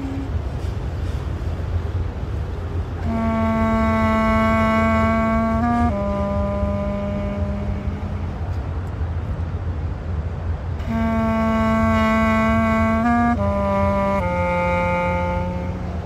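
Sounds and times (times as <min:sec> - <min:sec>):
clarinet playing long notes: 0:00.0 - 0:00.4, 0:03.0 - 0:08.6, 0:10.8 - 0:16.0
steady low rumble: 0:00.0 - 0:16.0.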